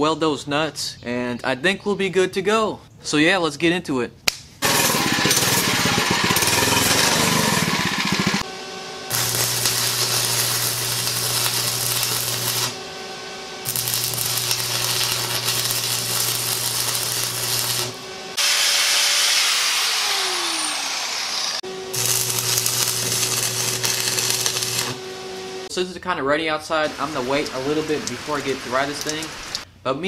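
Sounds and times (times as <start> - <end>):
loud rattling: 4.6 - 8.4
welding arc crackling: 4.6 - 8.5, 9.1 - 12.9, 13.6 - 18.5, 21.9 - 25.1, 26.8 - 29.7
angle grinder running: 4.6 - 25.7.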